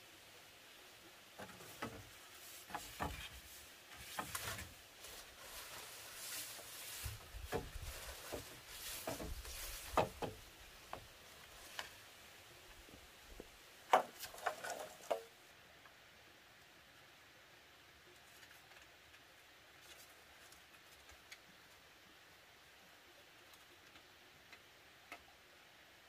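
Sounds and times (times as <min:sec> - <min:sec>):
bamboo poles knocking: 0:01.4 - 0:04.7, 0:05.6 - 0:11.1, 0:13.9 - 0:15.3.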